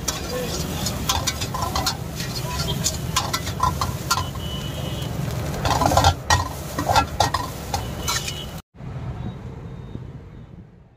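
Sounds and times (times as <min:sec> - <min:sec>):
steel spatula scraping wok: 0:00.0 - 0:04.8, 0:05.5 - 0:08.6
rice sizzling: 0:00.0 - 0:08.6.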